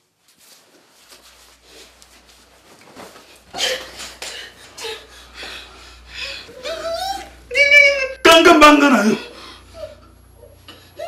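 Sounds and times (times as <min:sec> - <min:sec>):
bedclothes rustling: 0:00.0 - 0:07.4.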